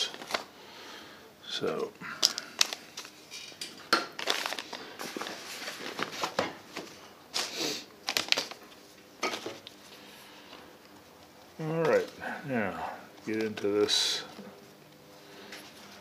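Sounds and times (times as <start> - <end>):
items crinkling: 0.0 - 0.6, 1.6 - 12.4.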